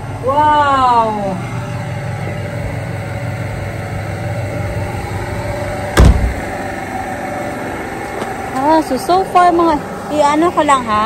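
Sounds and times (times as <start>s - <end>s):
engine humming: 0.0s - 11.0s
loud sharp knock: 6.0s - 6.4s.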